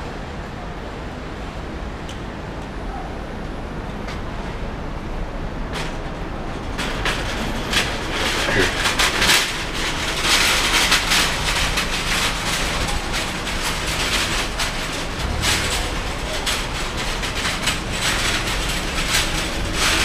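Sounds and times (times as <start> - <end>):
street noise: 0.0 - 20.0
trolley wheels rattling over tiles: 5.7 - 20.0.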